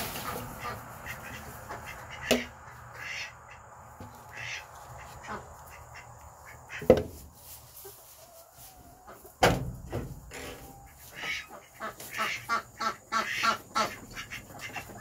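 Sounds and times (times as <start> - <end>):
ducks quacking: 0.0 - 7.1, 10.6 - 15.0.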